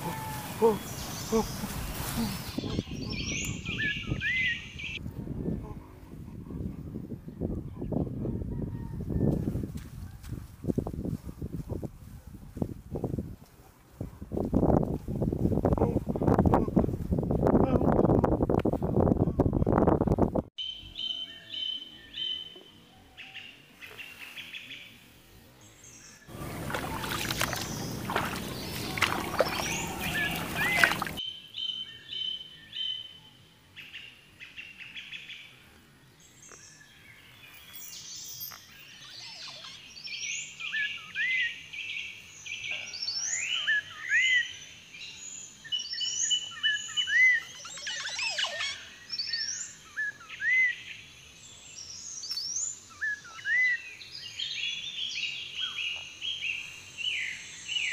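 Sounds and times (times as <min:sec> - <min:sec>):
birds chirping and whistling: 0:00.0 - 0:05.0, 0:26.0 - 0:33.1, 0:43.0 - 0:51.1, 0:51.8 - 0:57.9.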